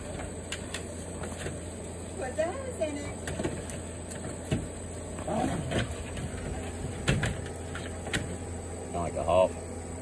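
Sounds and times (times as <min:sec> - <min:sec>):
plastic pool knocking and scraping: 0:05.3 - 0:08.4.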